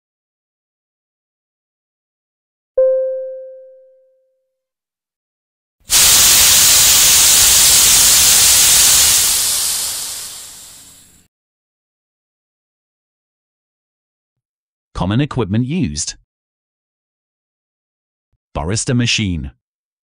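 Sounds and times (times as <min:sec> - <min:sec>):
chime ringing: 0:02.8 - 0:04.1
loud hiss of escaping steam: 0:05.9 - 0:11.2.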